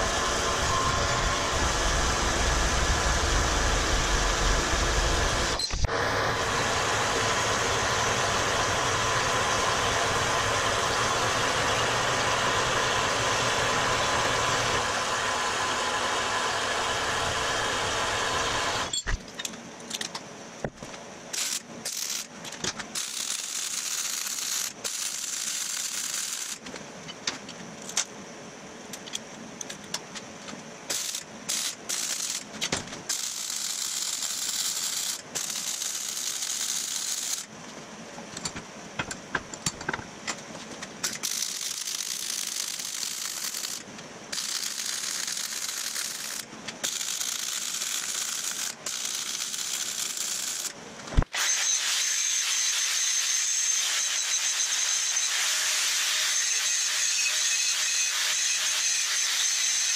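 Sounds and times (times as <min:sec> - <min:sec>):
welder crackling: 0:20.8 - 0:26.8, 0:30.9 - 0:37.5, 0:41.0 - 0:56.4
metal-cutting bandsaw cutting steel: 0:30.9 - 0:32.5, 0:33.1 - 0:37.5, 0:41.0 - 0:50.7, 0:51.4 - 0:59.9.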